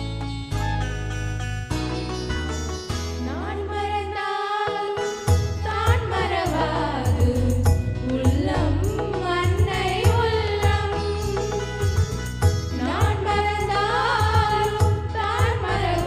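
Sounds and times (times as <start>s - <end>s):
girls singing together: 3.3s - 11.5s, 12.8s - 16.0s
amplified accompaniment with drum beat: 5.0s - 16.0s
strong bass: 5.3s - 16.0s.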